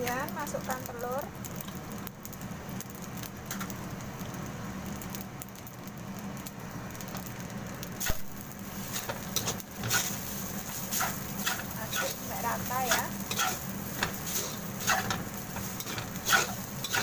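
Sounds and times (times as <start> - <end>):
rice sizzling in a wok: 0.0 - 17.0
metal spoon scraping a wok: 8.8 - 17.0.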